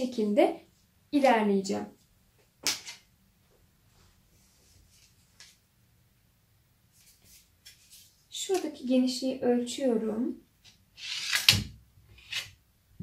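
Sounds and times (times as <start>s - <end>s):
wooden ruler sliding across fabric: 11.0s - 11.6s.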